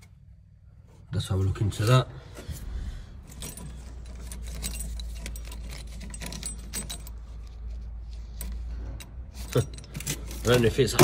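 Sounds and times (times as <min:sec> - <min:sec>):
car keys jangling: 0:03.2 - 0:11.0.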